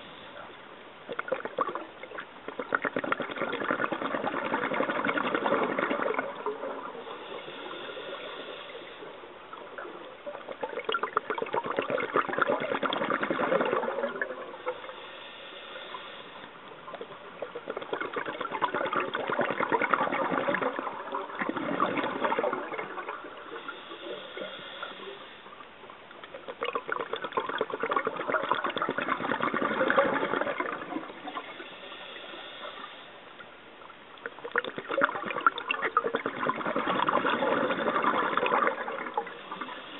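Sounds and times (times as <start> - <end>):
underwater bubbling exhales: 0.0 - 39.9
regulator inhalation hiss: 7.0 - 9.3, 14.6 - 16.7, 23.4 - 25.6, 31.4 - 33.3, 39.3 - 39.9.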